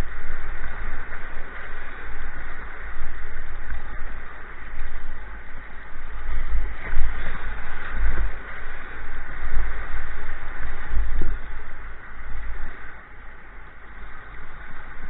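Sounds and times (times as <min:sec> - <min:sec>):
rushing river water: 0:00.0 - 0:15.0
wind buffeting microphone: 0:00.0 - 0:15.0.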